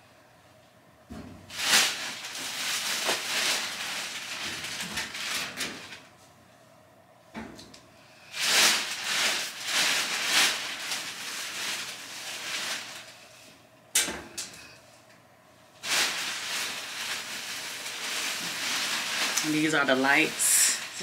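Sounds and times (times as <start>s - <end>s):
clothes and bag rustling: 15.8s - 21.0s.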